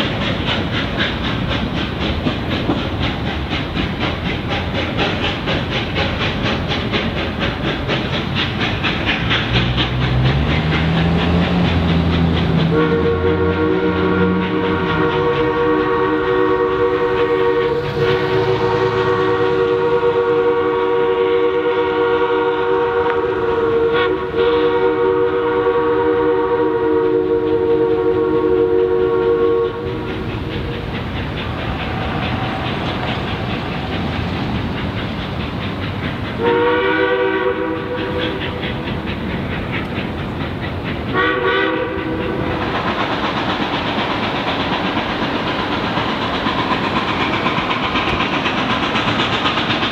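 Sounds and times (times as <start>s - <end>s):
steam train running: 0.0s - 49.9s
steam whistle blasts: 12.7s - 30.0s, 36.4s - 38.4s, 41.1s - 42.5s.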